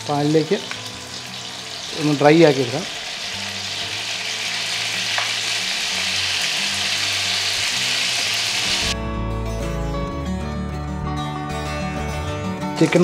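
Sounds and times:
chicken sizzling in a pan: 0.0 - 9.0
background music: 0.0 - 13.0.

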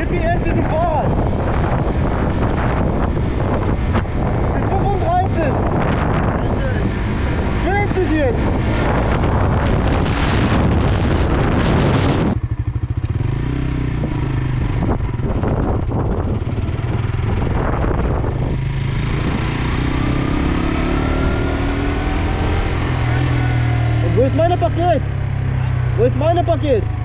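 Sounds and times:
wind noise on microphone: 0.0 - 25.0
motorcycle engine running: 0.0 - 27.0.

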